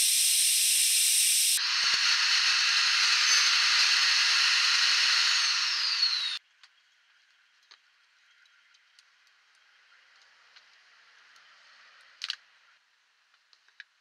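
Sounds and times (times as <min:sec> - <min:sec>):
table saw running: 0:00.0 - 0:06.4.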